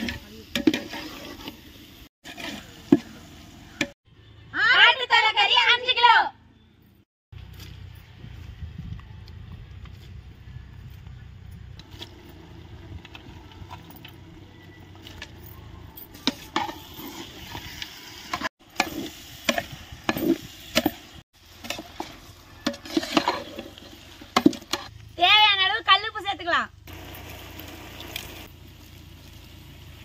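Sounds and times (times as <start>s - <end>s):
ladle scraping a pot: 0.0s - 3.2s, 21.6s - 24.9s
low sizzle: 0.0s - 4.0s, 16.2s - 30.0s.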